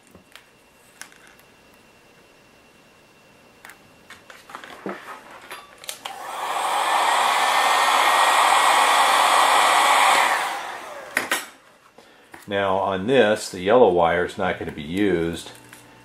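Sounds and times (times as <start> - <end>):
heat gun blowing: 6.0 - 11.6.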